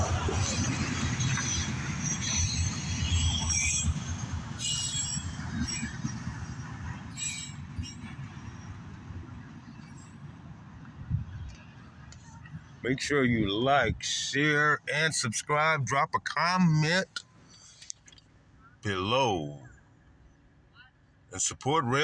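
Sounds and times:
train wheels rumbling on rails: 0.0 - 12.4
wheels squealing: 0.0 - 12.8.

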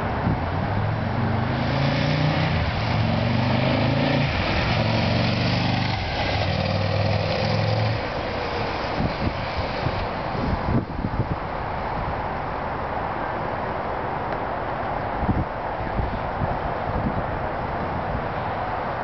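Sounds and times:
motorcycle engine accelerating: 1.0 - 8.3.

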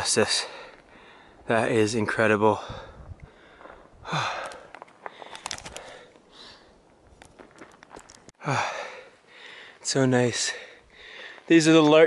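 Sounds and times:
person breathing heavily: 0.4 - 1.5, 2.5 - 6.8, 8.4 - 9.8, 10.4 - 11.5.

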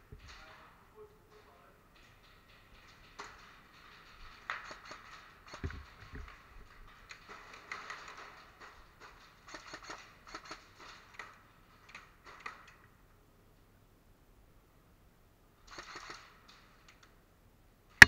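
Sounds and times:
sharp clicks and pops: 15.7 - 17.2.

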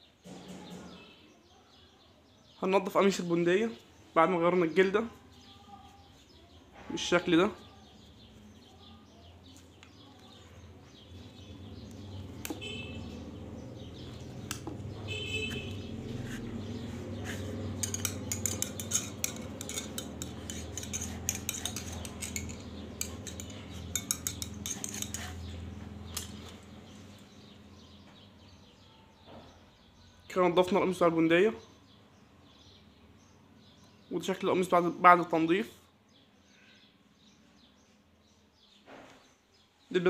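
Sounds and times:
rod scraping inside metal tube: 15.5 - 26.4.

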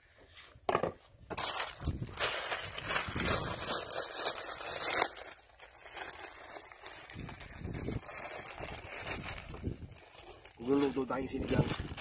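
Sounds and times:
plastic bag crinkling: 1.3 - 12.0.

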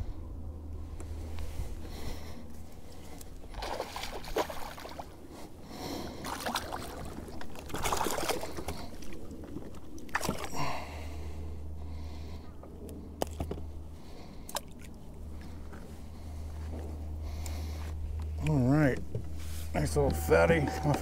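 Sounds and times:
water splashing and sloshing: 1.3 - 18.1.

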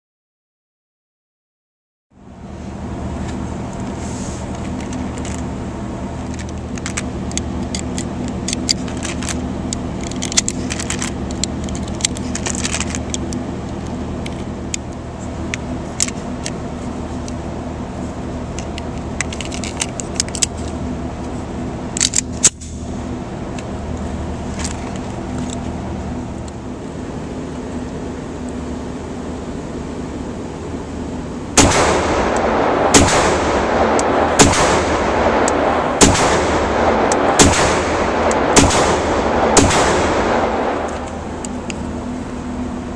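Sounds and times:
steady low hum: 2.1 - 42.9
cartridges clicking into magazine: 6.2 - 14.9, 18.5 - 20.8, 21.9 - 22.9, 31.6 - 41.9
loud bang: 31.6 - 41.5.

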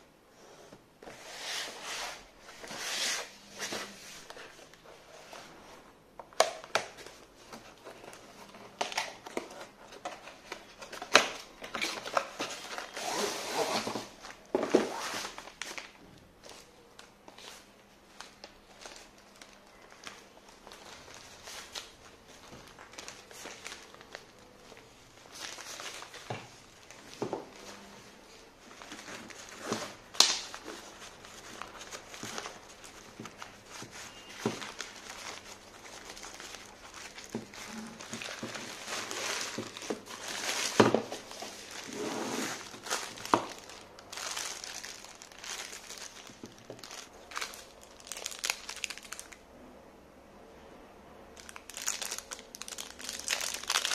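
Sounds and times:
plastic wrap crinkling: 6.4 - 27.8, 28.6 - 49.4, 51.4 - 53.9
nylon bag rustling: 28.8 - 49.3.

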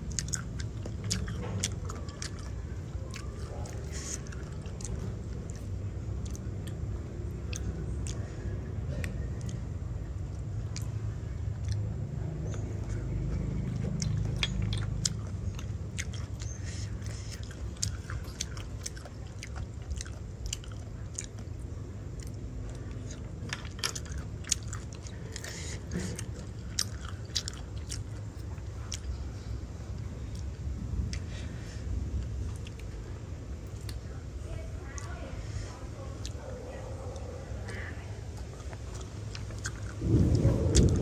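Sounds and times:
person biting and chewing: 0.0 - 6.8, 10.2 - 29.2, 38.4 - 41.0.

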